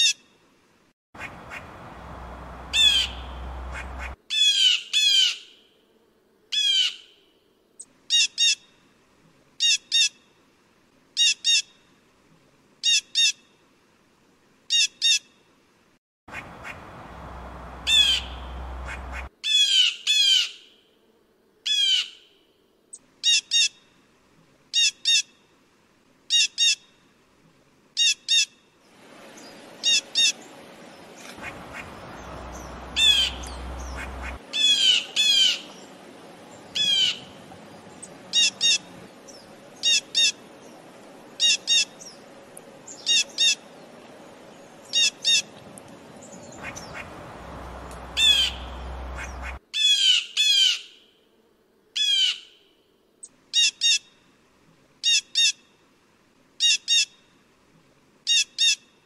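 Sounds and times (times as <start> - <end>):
blue jay calling: 1.2 - 5.6, 6.5 - 7.1, 16.3 - 20.7, 21.7 - 22.3, 23.2 - 23.8, 29.4 - 30.5, 31.1 - 43.7, 44.8 - 45.5, 46.2 - 51.1, 52.0 - 52.6, 55.0 - 55.6.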